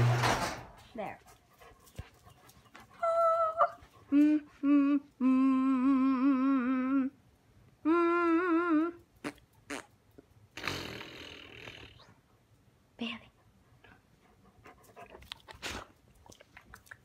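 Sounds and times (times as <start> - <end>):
person humming: 3.0 - 7.2, 7.8 - 9.4.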